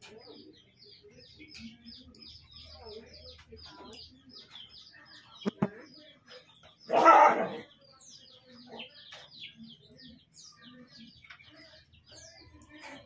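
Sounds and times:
small birds chirping: 0.0 - 13.0
dog barking: 6.9 - 7.7.

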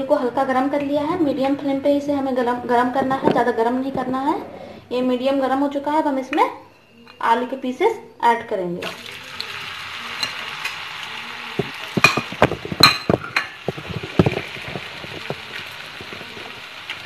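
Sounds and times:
oil sizzling: 8.8 - 17.0
sharp pops and knocks: 11.6 - 16.6.

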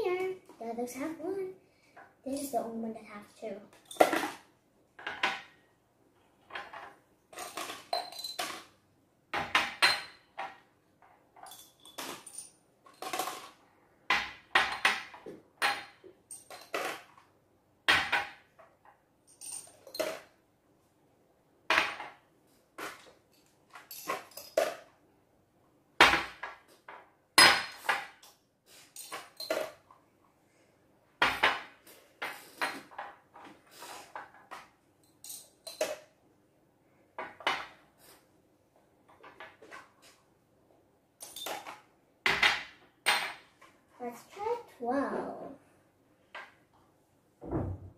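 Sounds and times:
glass jars clinking: 7.4 - 8.6.

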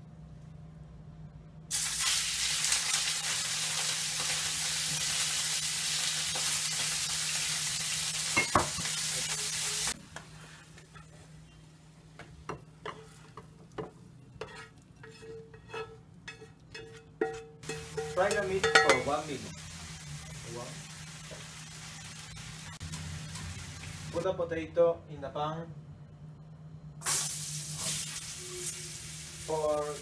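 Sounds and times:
meat sizzling in hot oil: 1.7 - 10.0, 17.6 - 24.2, 27.0 - 30.0
metal tongs scraping pan: 14.4 - 19.2.

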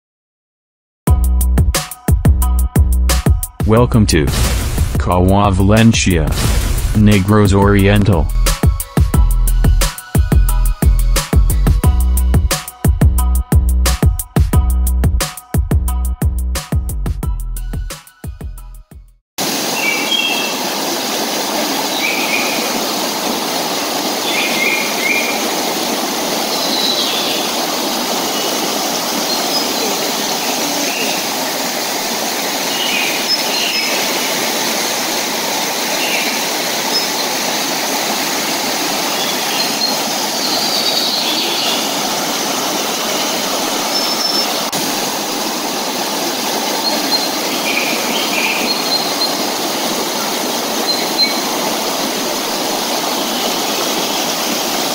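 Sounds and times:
river rushing over boulders: 19.4 - 54.9.

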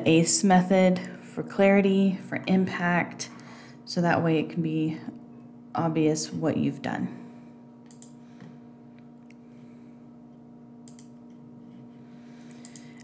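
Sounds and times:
low background hum: 0.0 - 13.0
computer mouse clicks: 7.9 - 8.2, 10.8 - 11.2, 12.6 - 12.9.

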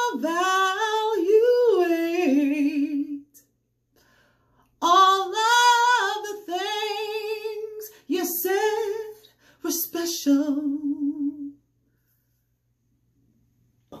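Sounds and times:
woman singing a cappella: 0.0 - 3.5, 4.7 - 11.6.

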